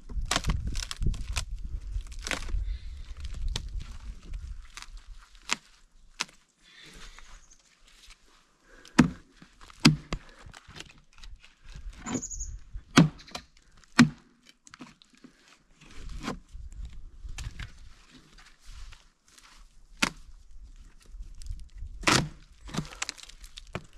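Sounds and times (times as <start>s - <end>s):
knife chopping wood: 8.9s - 10.3s, 12.9s - 14.3s, 22.0s - 23.8s
short high squeak: 12.0s - 12.6s.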